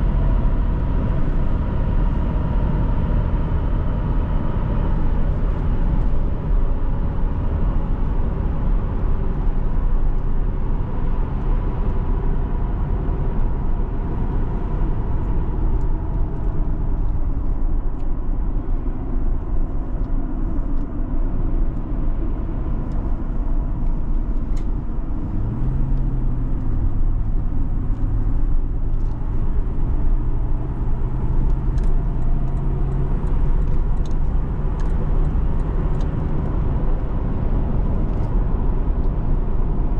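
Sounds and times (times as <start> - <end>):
engine and road rumble: 0.0 - 39.9.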